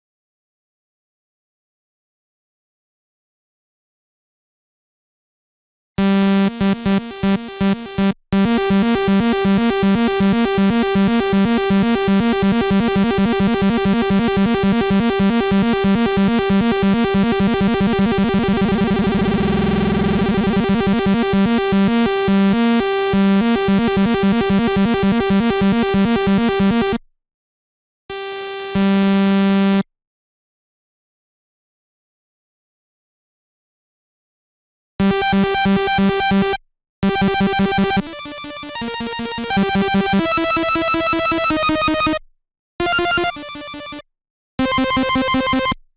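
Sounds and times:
synthesizer arpeggio: 6.5s - 27.0s
sustained synthesizer note: 13.2s - 22.0s.

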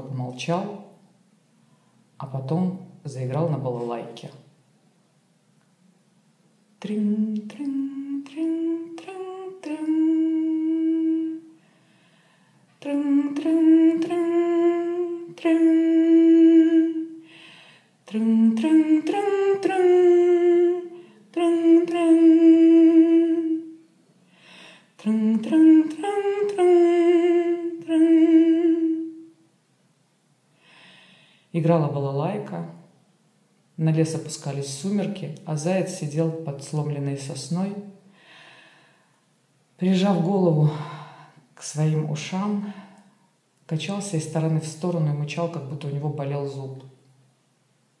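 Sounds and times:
woman humming a tune: 6.8s - 11.6s, 12.8s - 17.3s, 18.1s - 23.9s, 25.0s - 29.4s.

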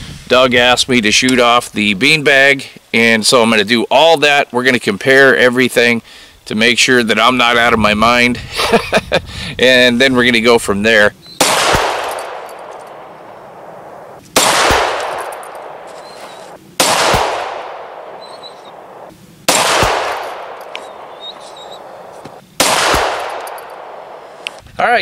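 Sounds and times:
pistol shots with echo: 11.4s - 24.4s.

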